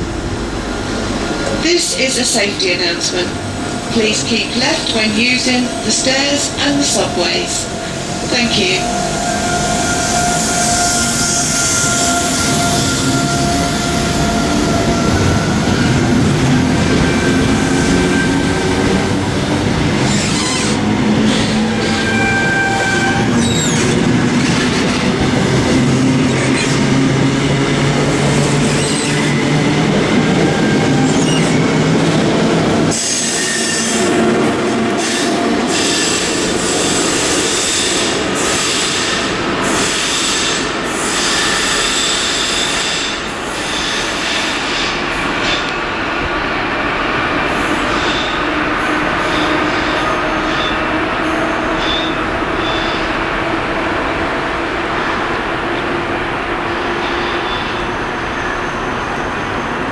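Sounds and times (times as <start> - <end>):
train wheels rumbling and clacking: 0.0 - 59.9
high wheel squeal: 8.8 - 15.8, 20.1 - 24.0, 30.4 - 31.8.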